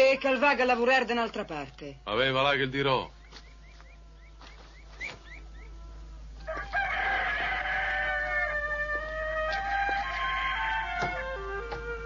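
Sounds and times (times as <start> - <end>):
rooster crowing: 5.6 - 12.0.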